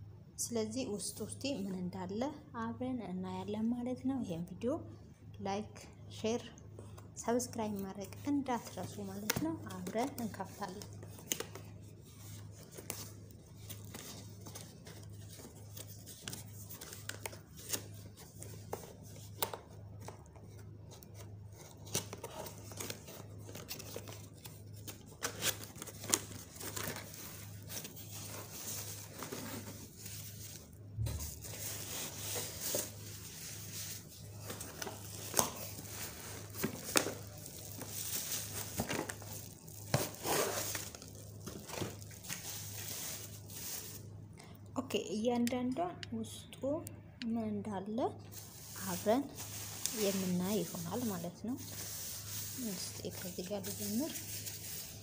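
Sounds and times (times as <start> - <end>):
bubble wrap crinkling: 7.6 - 44.1, 48.3 - 55.0
cardboard tearing and scraping: 34.6 - 43.3.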